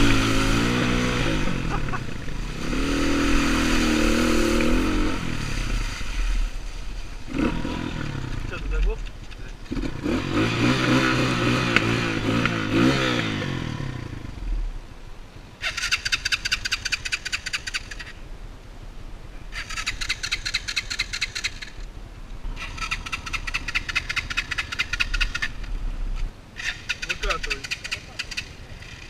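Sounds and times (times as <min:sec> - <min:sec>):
motorcycle engine revving: 0:00.0 - 0:14.6, 0:22.5 - 0:25.7
harsh bird chattering: 0:15.6 - 0:18.1, 0:19.5 - 0:21.8, 0:22.6 - 0:25.6, 0:26.6 - 0:29.0.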